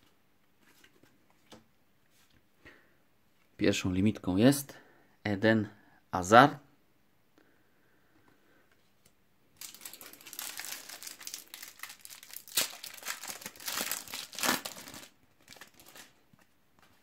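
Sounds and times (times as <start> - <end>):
foil wrapper crinkling and tearing: 9.6 - 16.2.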